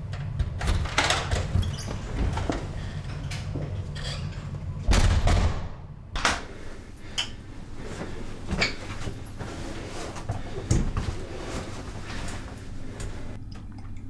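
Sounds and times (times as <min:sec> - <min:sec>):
low room hum: 0:00.0 - 0:14.0
door closing with heavy thud: 0:04.8 - 0:06.4.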